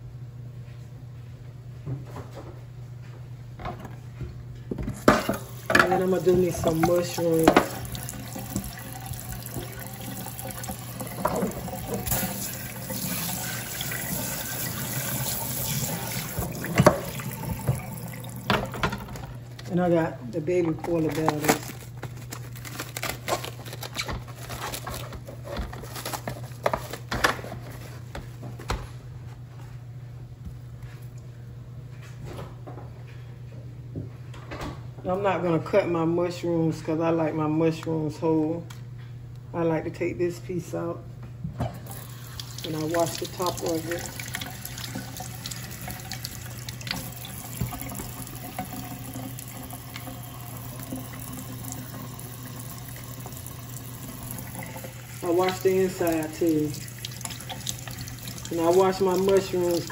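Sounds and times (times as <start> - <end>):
faucet running into metal sink: 5.4 - 19.0, 41.8 - 59.9
plastic film crinkling: 20.9 - 28.1
plastic film snaps: 21.2 - 25.0.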